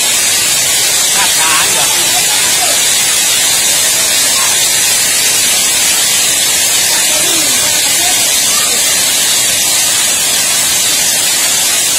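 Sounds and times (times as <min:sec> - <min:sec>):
hail falling on pavement: 0:00.0 - 0:11.9.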